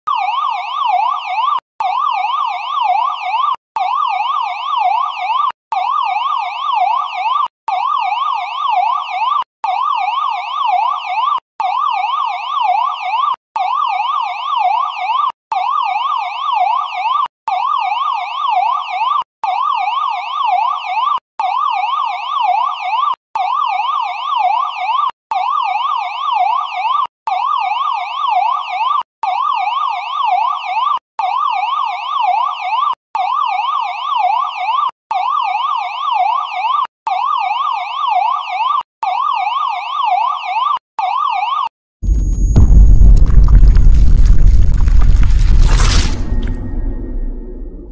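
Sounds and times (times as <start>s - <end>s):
police siren yelping: 0.1s - 42.9s.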